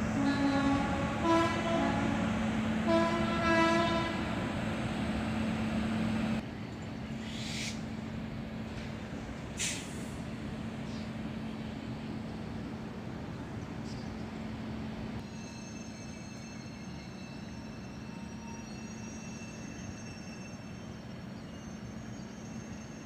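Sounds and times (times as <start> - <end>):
freight train rumbling past: 0.0 - 23.0
locomotive horn blasts: 0.1 - 4.4.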